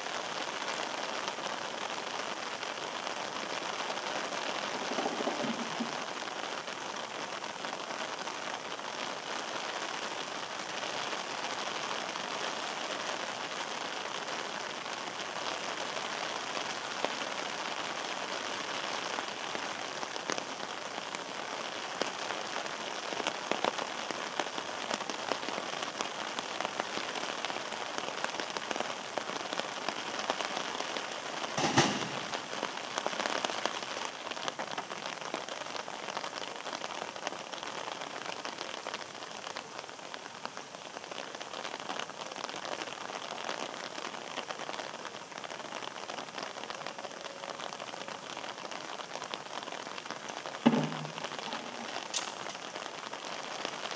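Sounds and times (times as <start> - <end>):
rain on wet concrete: 0.0 - 53.9
sharp knock: 31.6 - 32.5, 50.7 - 52.4.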